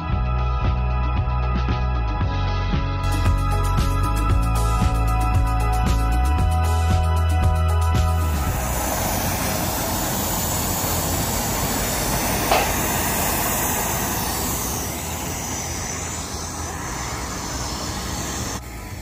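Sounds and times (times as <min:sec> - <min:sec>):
rushing airport apron noise: 0:08.4 - 0:19.0
sharp click: 0:12.4 - 0:12.8.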